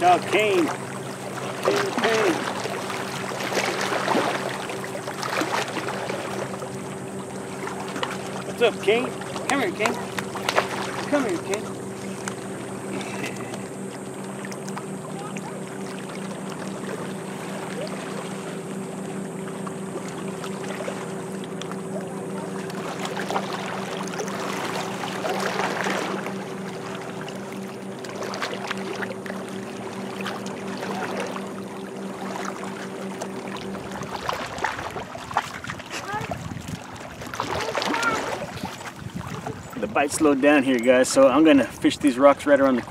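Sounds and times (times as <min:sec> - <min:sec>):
boat motor humming: 0:00.0 - 0:42.9
wind noise: 0:38.4 - 0:40.0.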